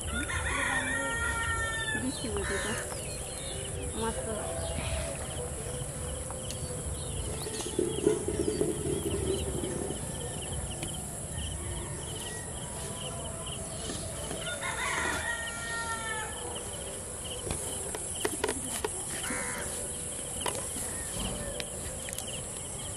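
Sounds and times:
rooster crowing: 0:00.0 - 0:02.8, 0:11.3 - 0:16.7
high insect drone: 0:00.0 - 0:22.9
rapid insect chirping: 0:00.0 - 0:22.9.

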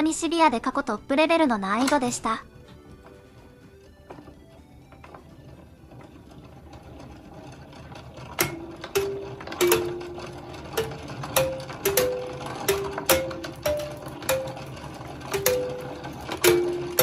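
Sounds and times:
gear train and governor whirring: 0:00.7 - 0:17.0
kalimba tines plucked: 0:08.4 - 0:17.0.

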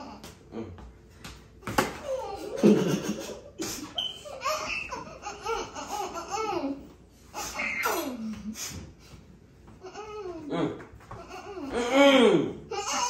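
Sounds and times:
kids laughing: 0:02.0 - 0:08.5.

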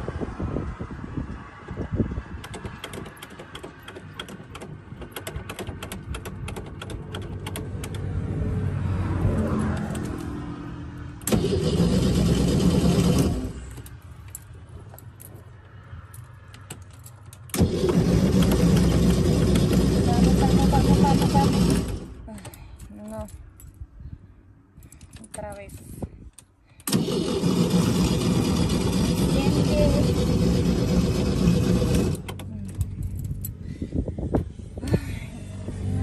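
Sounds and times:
low engine sound: 0:05.7 - 0:23.2, 0:26.9 - 0:36.0
engine cranking on starter: 0:11.2 - 0:13.9, 0:17.5 - 0:22.2, 0:26.8 - 0:32.5.

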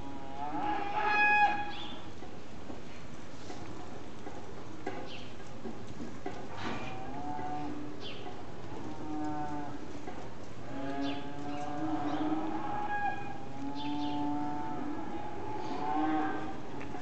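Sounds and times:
calves mooing: 0:00.0 - 0:01.8, 0:06.7 - 0:08.0, 0:08.6 - 0:09.9, 0:10.6 - 0:17.0.

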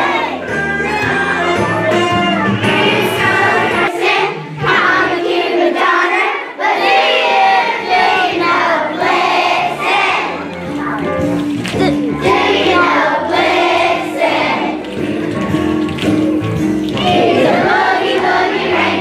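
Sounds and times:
children singing together: 0:00.0 - 0:01.2, 0:02.6 - 0:10.5, 0:11.8 - 0:14.8, 0:17.0 - 0:19.0
music accompaniment: 0:00.0 - 0:19.0.

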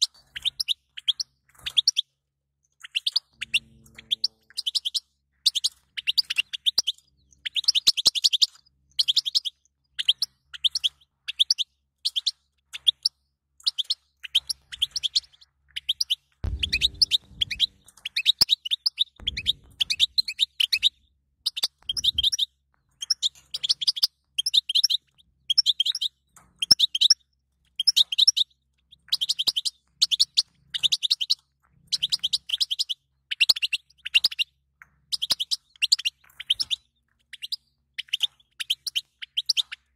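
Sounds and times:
goldfinch twittering: 0:15.9 - 0:24.9.

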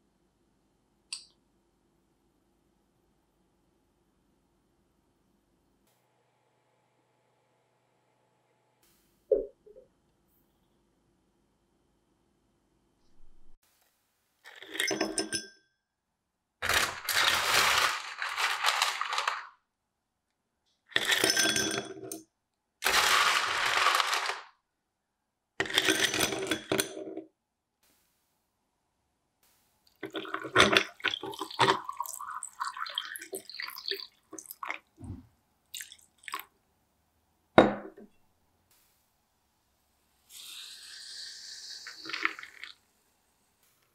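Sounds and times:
ice cubes clinking in a glass: 0:14.5 - 0:15.4, 0:16.6 - 0:19.5, 0:21.0 - 0:22.1, 0:22.8 - 0:24.4, 0:25.6 - 0:26.9, 0:30.1 - 0:34.7, 0:41.8 - 0:42.7.

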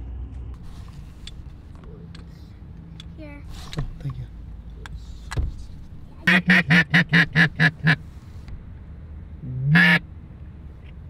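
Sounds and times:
duck quacking: 0:06.2 - 0:08.0, 0:09.7 - 0:10.0.

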